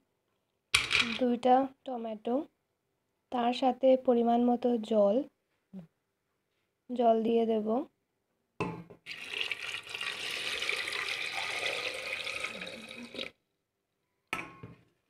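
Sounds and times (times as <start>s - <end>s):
water pouring into a pot: 9.1s - 13.3s.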